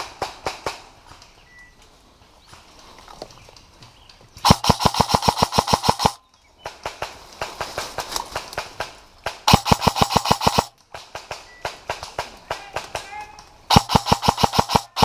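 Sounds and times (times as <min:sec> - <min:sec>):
airsoft rifle full-auto bursts: 0:04.4 - 0:06.2, 0:09.5 - 0:12.0, 0:13.7 - 0:15.0
faint rapid automatic clicking: 0:04.4 - 0:06.2, 0:09.5 - 0:15.0.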